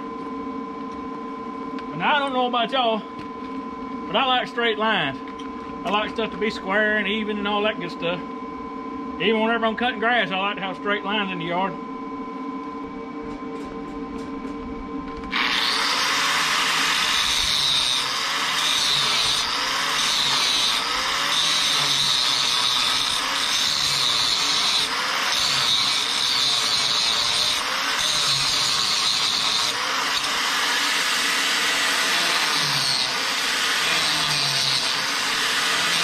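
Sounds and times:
angle grinder grinding steel: 15.3 - 36.0.

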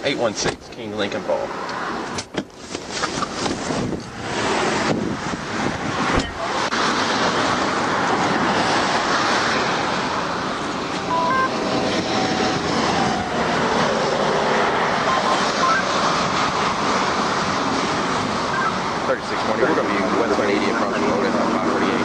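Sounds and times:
highway traffic rushing: 0.0 - 22.0
wind noise: 2.8 - 19.0.

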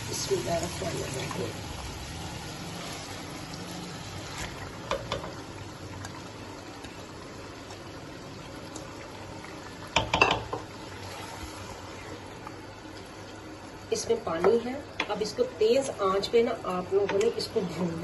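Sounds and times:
pot bubbling on stove: 0.0 - 18.0
wooden spoon knocking pot: 10.0 - 10.7.

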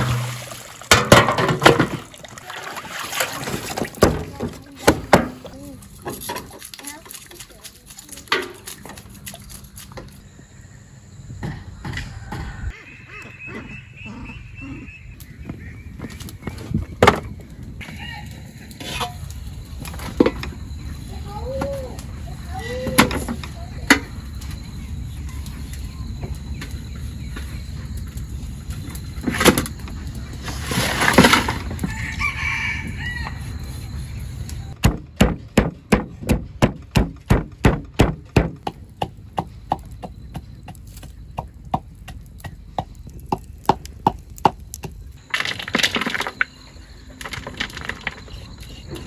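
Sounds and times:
rooster crowing: 11.9 - 12.8, 17.8 - 18.6, 31.8 - 33.8
pounding in wooden mortar: 34.8 - 46.4.

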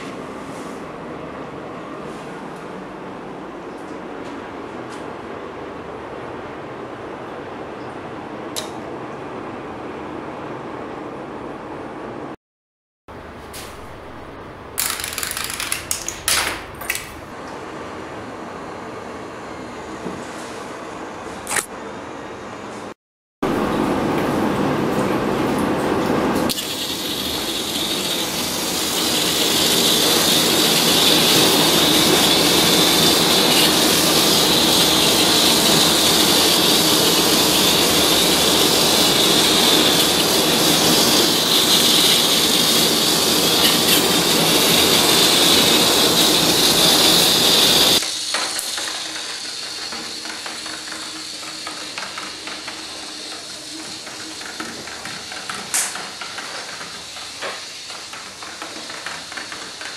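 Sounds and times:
machine hissing whir: 25.9 - 59.9.

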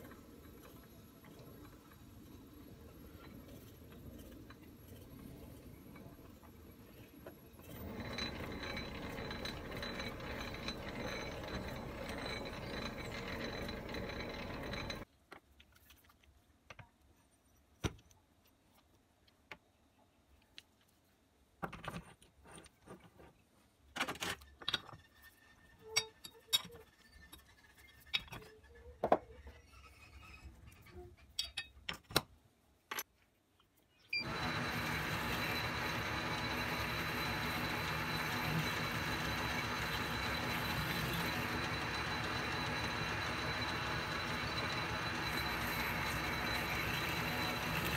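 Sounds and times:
metal lathe running: 7.7 - 15.0, 34.2 - 47.9.

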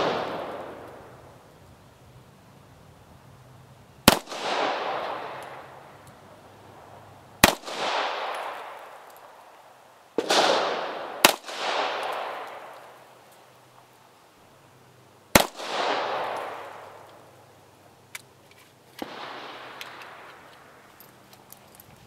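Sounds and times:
pistol shots with echo: 0.0 - 1.1, 4.0 - 6.0, 7.4 - 9.4, 10.2 - 13.2, 15.3 - 17.2, 19.0 - 20.8.

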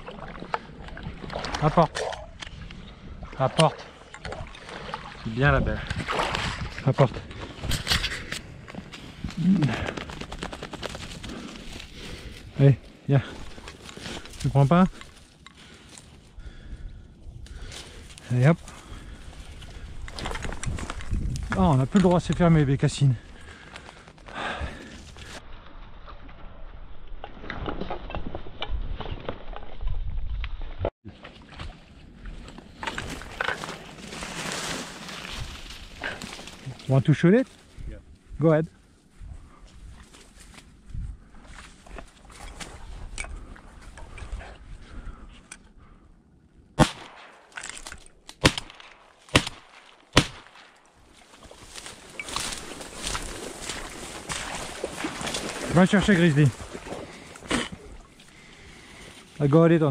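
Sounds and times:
dry reeds rustling and crackling: 6.3 - 16.4, 17.4 - 26.2, 31.2 - 43.1, 47.5 - 59.9
footsteps crunching on snow: 32.4 - 37.8, 50.8 - 59.5
shotgun shots: 46.8 - 47.6, 48.4 - 50.8.

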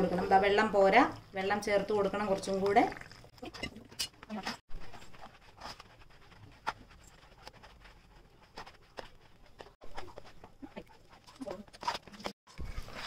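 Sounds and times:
batter squelching: 4.2 - 13.0.

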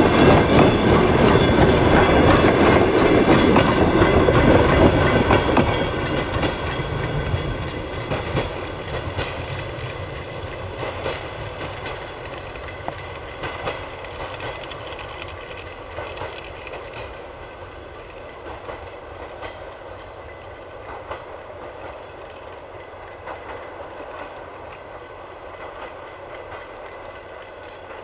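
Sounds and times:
diesel train droning: 0.0 - 9.1
wheels clicking over rail joints: 0.0 - 28.0.

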